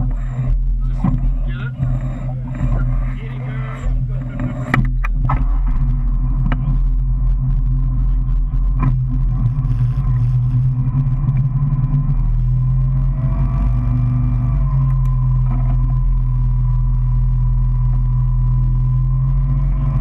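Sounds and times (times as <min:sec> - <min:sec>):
motorboat engine running: 0:00.0 - 0:20.0.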